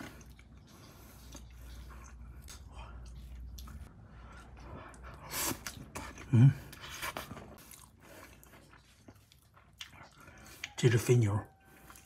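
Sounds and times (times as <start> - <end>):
person chewing: 0.0 - 12.0.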